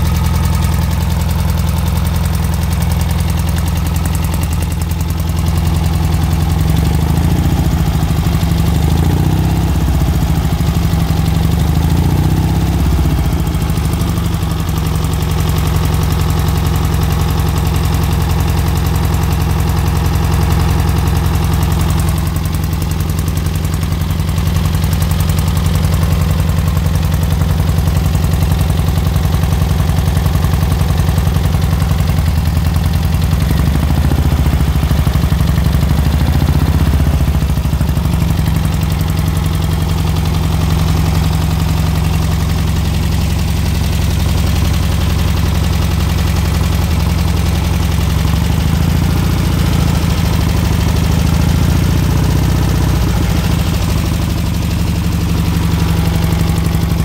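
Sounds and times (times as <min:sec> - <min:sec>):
car engine idling: 0:00.0 - 0:57.0.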